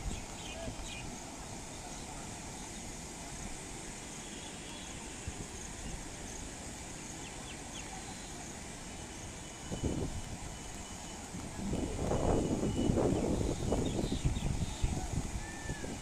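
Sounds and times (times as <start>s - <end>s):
river rushing: 0.0s - 16.0s
wind on microphone: 11.3s - 16.0s.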